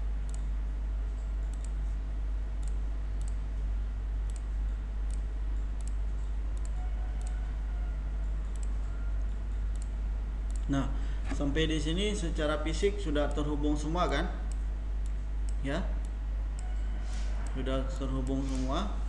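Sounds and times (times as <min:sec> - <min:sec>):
low electrical hum: 0:00.0 - 0:19.0
computer mouse clicking: 0:00.3 - 0:00.5, 0:01.2 - 0:01.8, 0:04.3 - 0:04.5, 0:05.1 - 0:07.4, 0:08.2 - 0:10.7.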